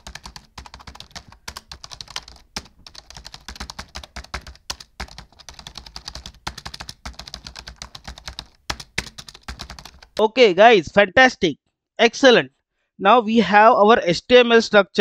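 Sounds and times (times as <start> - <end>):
typing on computer keyboard: 0.0 - 10.2.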